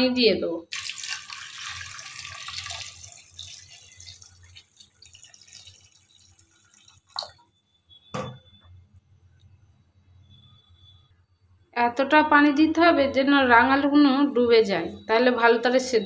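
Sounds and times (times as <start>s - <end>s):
water pouring into metal pot: 0.7s - 7.5s.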